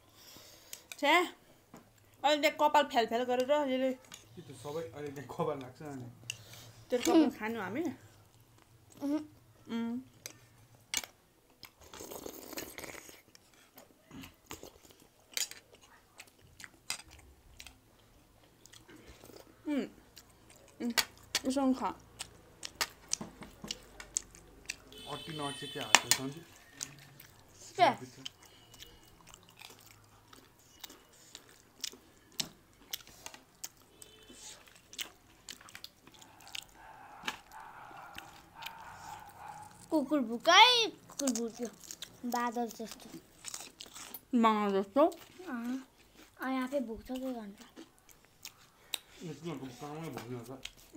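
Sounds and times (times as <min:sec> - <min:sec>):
chewing: 0:10.1 - 0:25.3, 0:26.1 - 0:50.9
food crunching: 0:10.2 - 0:40.1, 0:41.0 - 0:46.4, 0:47.0 - 0:50.9.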